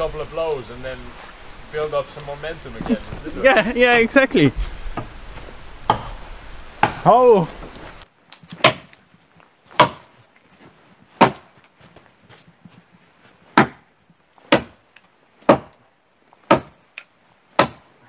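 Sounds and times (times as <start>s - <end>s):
axe chopping wood: 5.9s - 6.2s, 6.8s - 7.2s, 8.5s - 9.0s, 9.7s - 10.1s, 11.2s - 11.6s, 13.5s - 13.9s, 14.5s - 14.8s, 15.4s - 15.8s, 16.5s - 16.8s, 17.6s - 17.9s.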